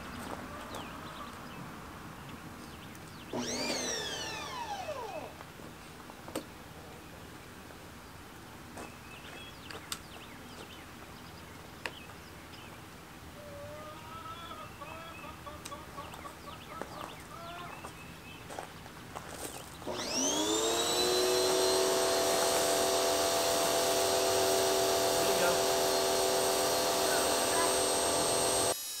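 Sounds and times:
chickens clucking: 0.0s - 2.4s, 13.4s - 18.0s.

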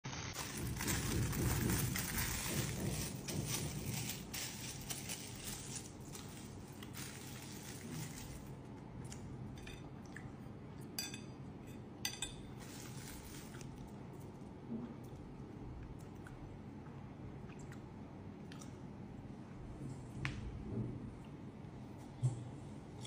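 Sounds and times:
rustling: 0.0s - 8.5s.

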